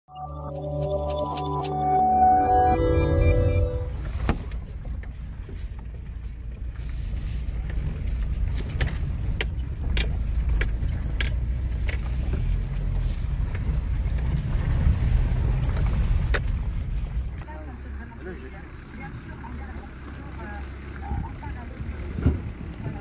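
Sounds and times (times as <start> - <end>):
car cabin low rumble: 3.7 - 23.0
clicks and rattles: 7.6 - 17.4.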